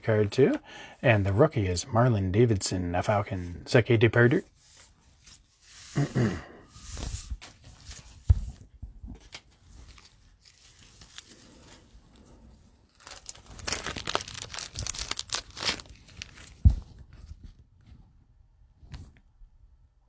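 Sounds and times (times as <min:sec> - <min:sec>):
plastic wrapping crinkling: 0:09.2 - 0:17.2.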